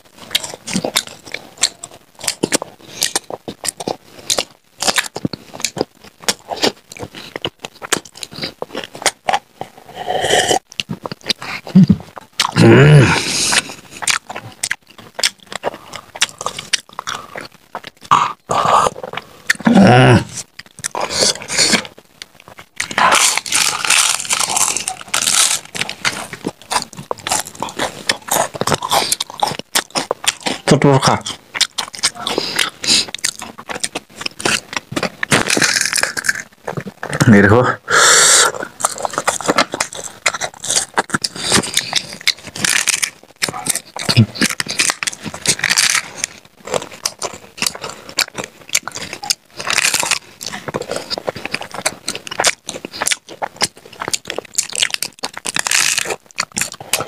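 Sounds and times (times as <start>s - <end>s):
crunching crisp snacks: 10.6s - 37.4s, 38.4s - 57.0s.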